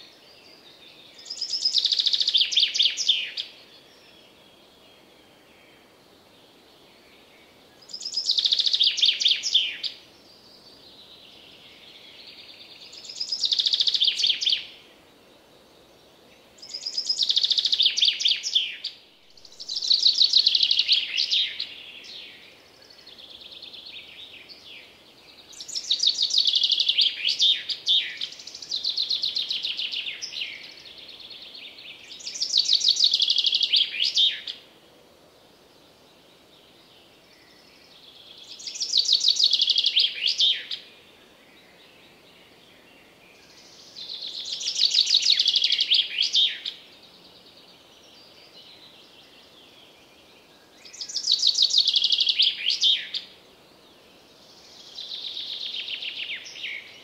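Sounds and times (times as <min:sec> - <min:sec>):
chaffinch singing: 0:00.0 - 0:04.8, 0:07.8 - 0:14.9, 0:16.6 - 0:34.7, 0:36.8 - 0:57.0
faint birdsong: 0:00.0 - 0:57.0.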